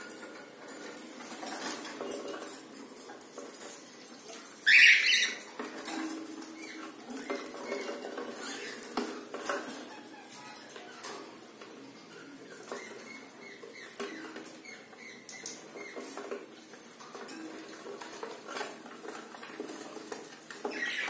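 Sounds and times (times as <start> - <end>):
bird claws scratching on cage: 0.1 - 11.4.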